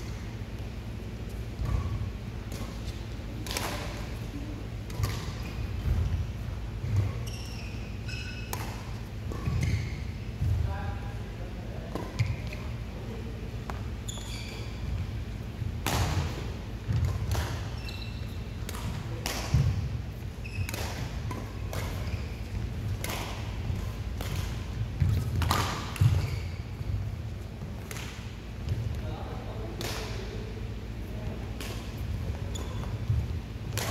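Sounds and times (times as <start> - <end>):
court shoes squeaking: 0.0 - 10.7, 11.9 - 12.8, 13.6 - 30.3, 30.9 - 33.9
shuttlecock struck by rackets: 22.9 - 26.3, 33.1 - 33.9.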